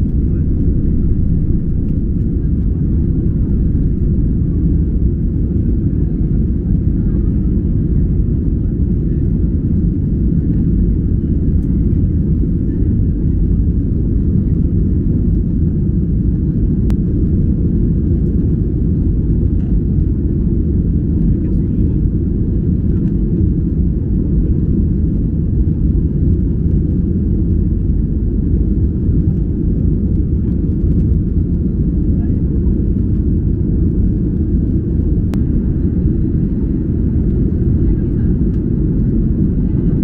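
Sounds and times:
jet engines in cabin: 0.0 - 40.0.

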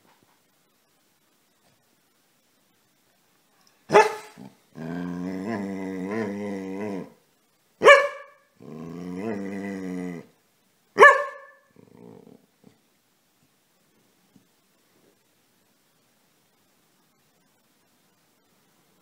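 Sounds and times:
dog barking: 3.9 - 4.5, 7.8 - 8.4, 11.0 - 11.7
dog growling grumble: 4.4 - 7.2, 8.6 - 10.3, 11.8 - 12.5.

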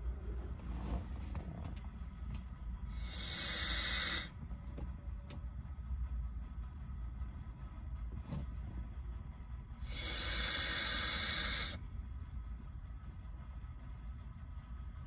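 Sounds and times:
vape hiss: 2.9 - 4.4, 9.8 - 11.8.

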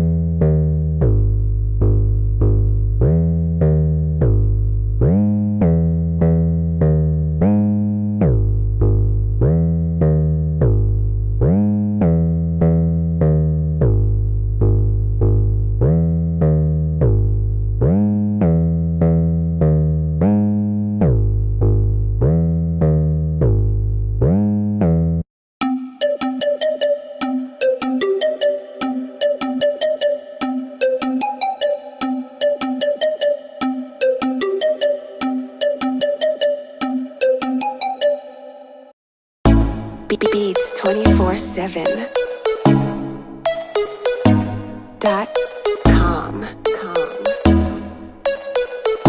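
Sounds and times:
deep synth bass notes: 0.0 - 25.2, 39.5 - 49.0.

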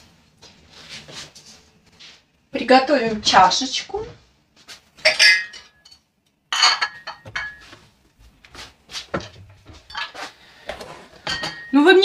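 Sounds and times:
cup and dishes clinking: 5.0 - 7.8, 9.2 - 10.2, 11.2 - 11.8.

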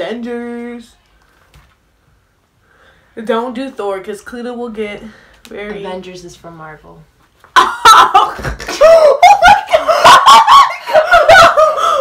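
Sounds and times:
loud laughter: 7.6 - 12.0.

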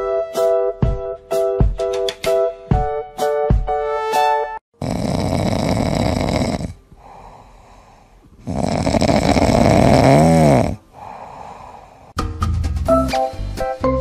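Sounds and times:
cat snoring: 4.8 - 12.1
cat breathing softly: 7.0 - 8.4, 10.9 - 12.2.

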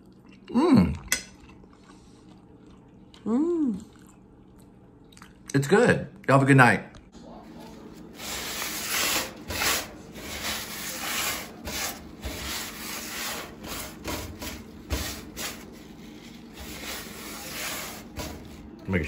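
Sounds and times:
sponge scrubbing metal: 8.0 - 18.7.

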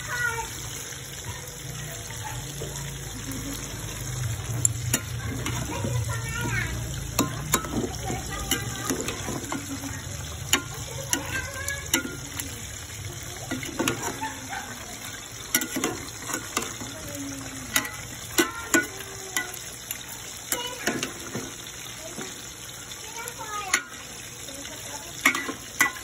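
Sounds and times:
chicken sizzling in liquid: 0.0 - 26.0
metal spoon scraping a pot: 7.2 - 12.5.

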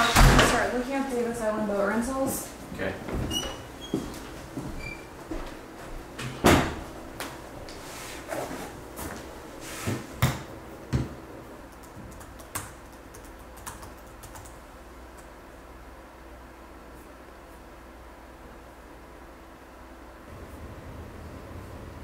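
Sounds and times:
laptop keys typing: 11.6 - 15.3.

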